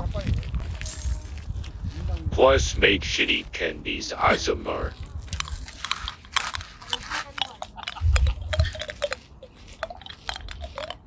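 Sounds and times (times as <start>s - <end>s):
hard candy crunching: 3.9s - 11.0s.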